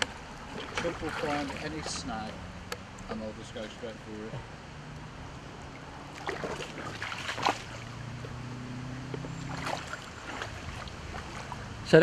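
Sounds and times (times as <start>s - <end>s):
short splashes or knocks: 0.0s - 2.0s, 5.7s - 11.7s
river water rushing: 0.0s - 12.0s.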